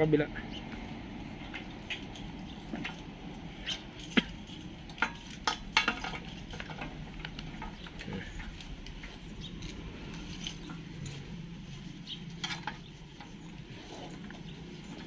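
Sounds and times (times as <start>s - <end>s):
hands handling ignition coil wires: 0.5s - 15.0s.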